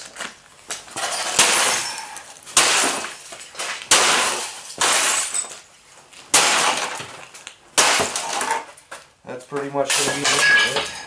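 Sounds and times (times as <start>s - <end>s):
plastic and glass breaking: 0.0s - 9.1s, 9.7s - 11.0s
monitor being smashed: 0.9s - 5.6s, 6.3s - 8.8s.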